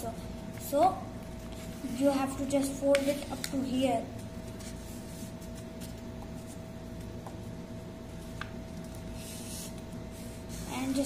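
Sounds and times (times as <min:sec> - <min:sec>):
steady low hum: 0:00.0 - 0:11.0
paper rustling and rubbing: 0:04.2 - 0:06.7, 0:08.2 - 0:11.0.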